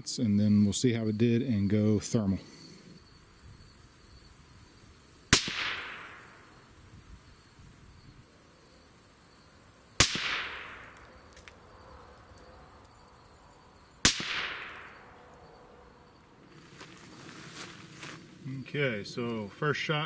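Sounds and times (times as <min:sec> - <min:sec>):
rifle shots with echo: 0:05.3 - 0:06.4, 0:10.0 - 0:11.0, 0:14.0 - 0:15.0.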